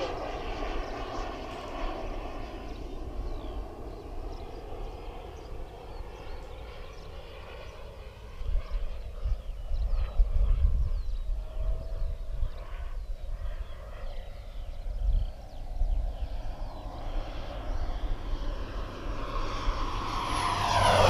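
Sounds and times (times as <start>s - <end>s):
distant model jet turbine: 0.0s - 21.0s
wind rumble on microphone: 0.0s - 21.0s.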